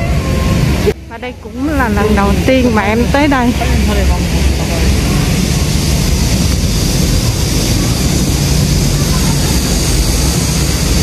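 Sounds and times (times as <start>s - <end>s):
low rumble: 0.0s - 11.0s
hiss: 3.7s - 11.0s.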